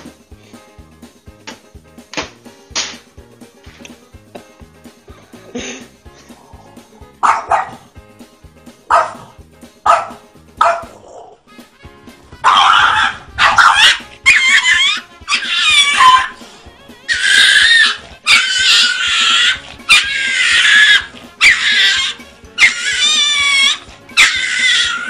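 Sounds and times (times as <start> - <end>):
background music: 0.0 - 25.0
dog barking: 7.2 - 7.9, 8.9 - 11.3, 12.4 - 16.4, 17.1 - 25.0
loud drawn-out wavering cries: 12.5 - 16.4, 17.1 - 25.0.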